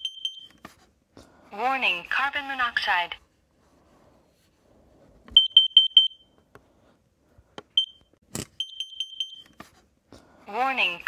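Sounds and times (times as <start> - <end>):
high-pitched alarm beeps: 0.0 - 0.6, 5.4 - 6.3, 7.8 - 8.0, 8.6 - 9.5.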